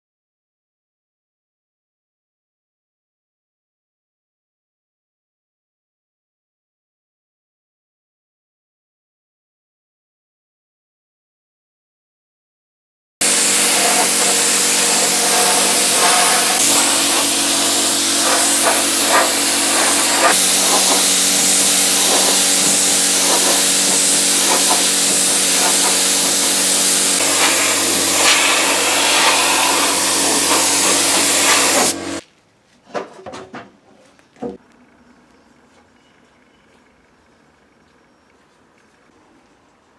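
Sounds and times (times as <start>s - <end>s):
spray gun hissing: 13.2s - 32.2s.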